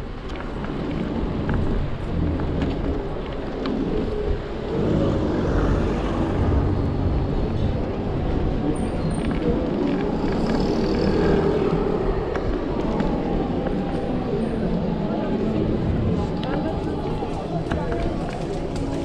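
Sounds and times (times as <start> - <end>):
tyre and road noise: 0.0 - 19.0
wind on microphone: 0.0 - 19.0.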